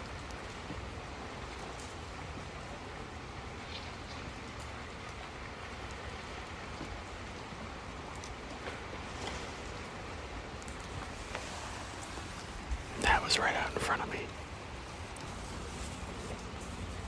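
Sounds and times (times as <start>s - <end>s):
running water hiss: 0.0s - 17.0s
faint ticks: 15.0s - 15.4s.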